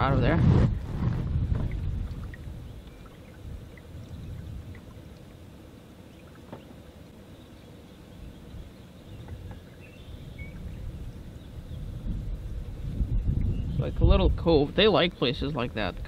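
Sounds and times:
faint low rumble: 0.0 - 6.4
water lapping against hull: 0.0 - 16.0.

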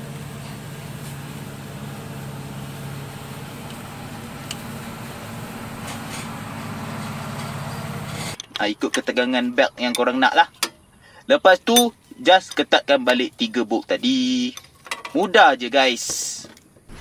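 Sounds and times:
low machine hum: 0.0 - 10.2.

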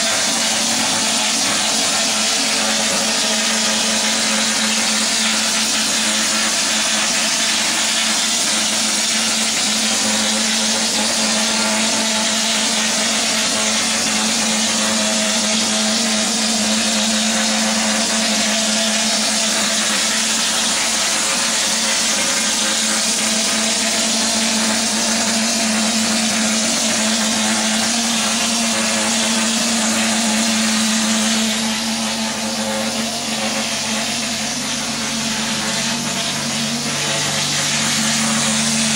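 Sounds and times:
spray foam rig hissing: 0.0 - 38.9.

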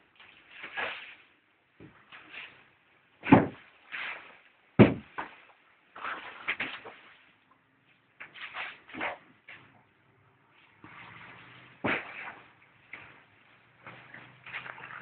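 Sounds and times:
horse body thumping down: 4.8 - 5.2, 11.8 - 12.4
straw rustling: 10.5 - 15.0.

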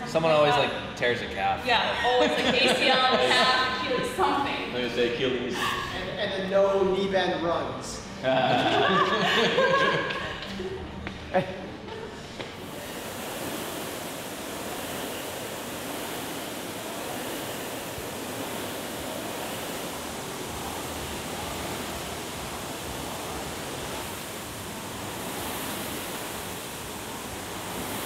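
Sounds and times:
rowing machine flywheels rushing: 12.4 - 28.0.

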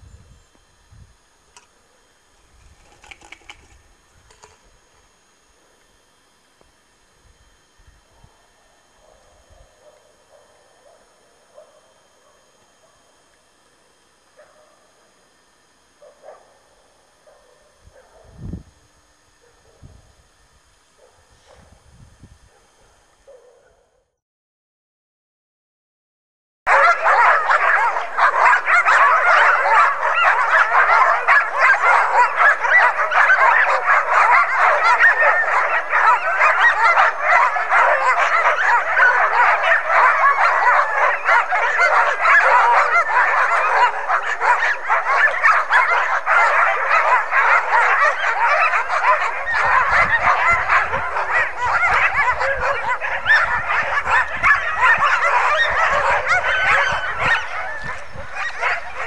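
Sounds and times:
sled dogs barking and yelping: 26.7 - 59.0.

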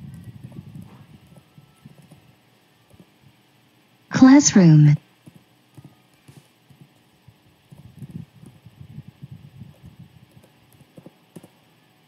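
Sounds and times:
typing on computer keyboard: 0.0 - 2.3, 7.7 - 8.6, 9.7 - 11.6.

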